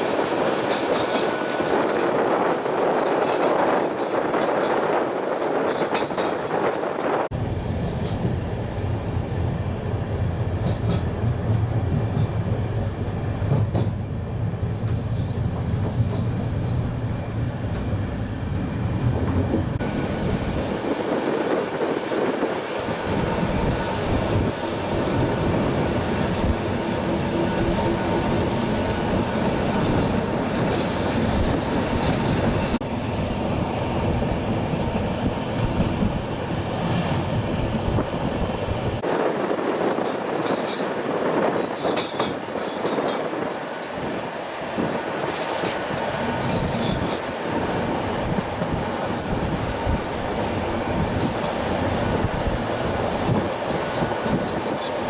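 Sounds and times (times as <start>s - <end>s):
train wheels rumbling on rails: 0.0s - 55.0s
wind: 0.0s - 55.0s
high wheel squeal: 0.6s - 2.2s, 15.2s - 32.8s, 43.8s - 55.0s.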